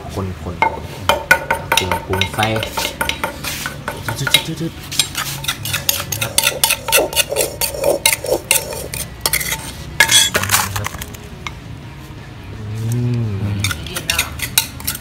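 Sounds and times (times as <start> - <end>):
spoon scraping a mortar: 1.7 - 11.1, 13.6 - 15.0.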